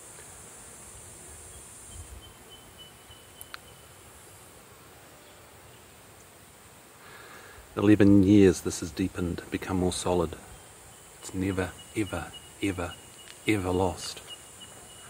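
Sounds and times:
insects buzzing: 0:00.0 - 0:15.0
light click: 0:03.4 - 0:03.7.

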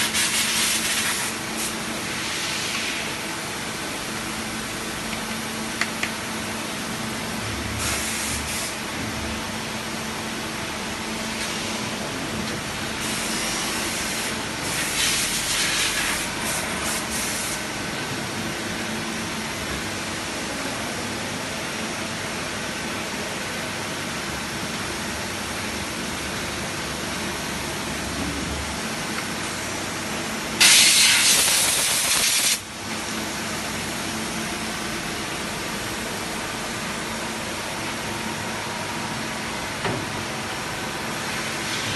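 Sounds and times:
compressed air hissing: 0:13.0 - 0:17.6, 0:30.6 - 0:32.6.

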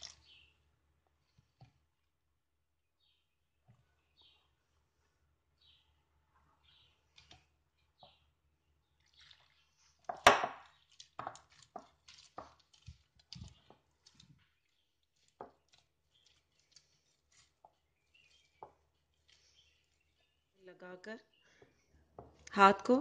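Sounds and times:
sticky dough squelching: 0:06.8 - 0:20.6.

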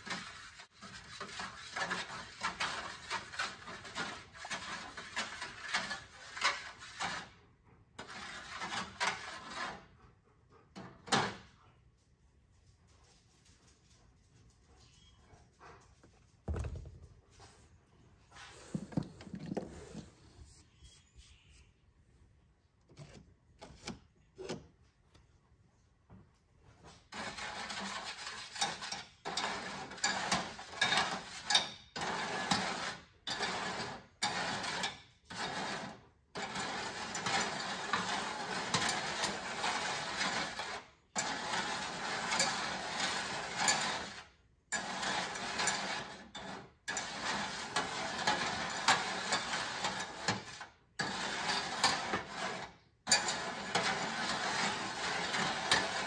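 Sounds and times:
brass scraping salt in metal pan: 0:00.0 - 0:07.4, 0:08.0 - 0:09.8, 0:27.1 - 0:56.0.

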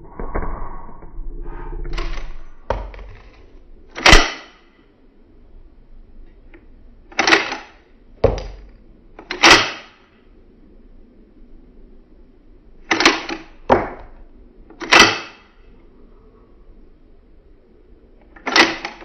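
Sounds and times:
pistol bolt metallic clacks: 0:04.0 - 0:04.5, 0:14.8 - 0:15.4.

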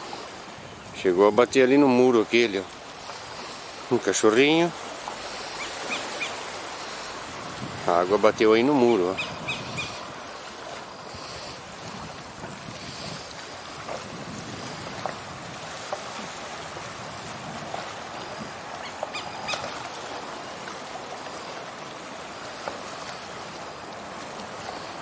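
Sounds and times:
water lapping over sand: 0:00.0 - 0:25.0.

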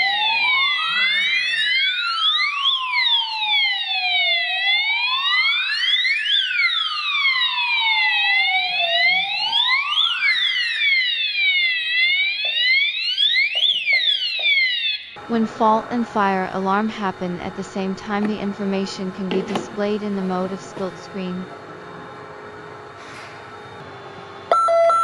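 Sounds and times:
fire alarm wailing siren: 0:00.0 - 0:15.4, 0:24.5 - 0:25.0
higher sweeping alarm tone: 0:00.0 - 0:19.0, 0:24.5 - 0:25.0.

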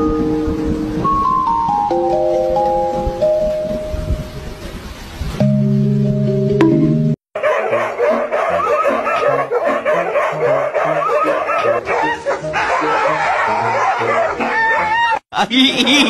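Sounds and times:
background music with bass: 0:05.4 - 0:07.2
dogs whining and howling: 0:07.4 - 0:15.2.

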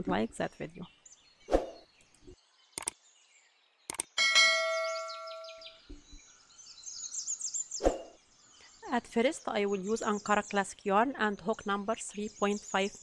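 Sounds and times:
brief clicks: 0:02.8 - 0:03.0, 0:03.9 - 0:04.1
bell-like ding: 0:04.2 - 0:05.8.

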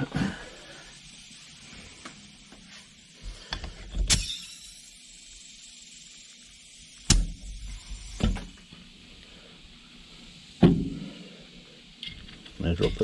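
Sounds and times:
can set down on workbench: 0:08.2 - 0:08.6, 0:10.6 - 0:11.1.

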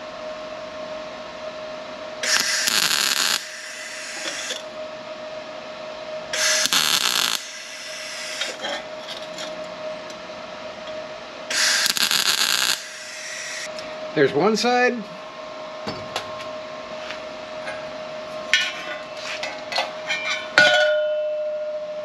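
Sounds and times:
faint steady hum: 0:00.0 - 0:22.0
arc welder crackling: 0:02.2 - 0:04.7, 0:06.3 - 0:09.3, 0:11.5 - 0:14.6.

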